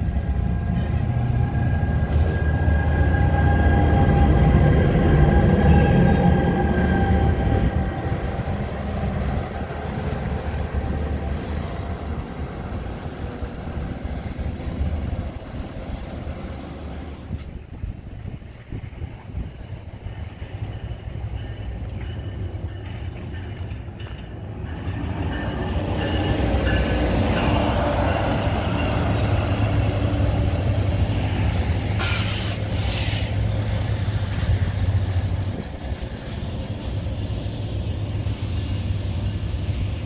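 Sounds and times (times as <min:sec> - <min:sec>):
train engine and wheel rumble: 0:00.0 - 0:40.0
short air hisses: 0:32.0 - 0:33.5.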